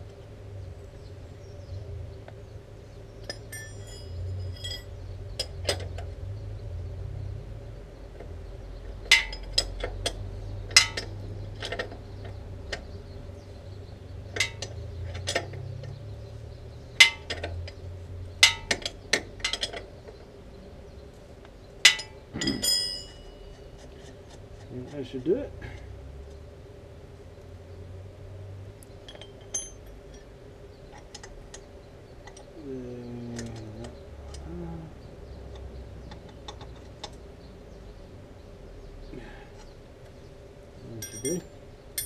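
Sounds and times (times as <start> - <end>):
metal spanner clinking on nut: 3.3 - 5.9, 29.0 - 30.2, 41.0 - 41.4.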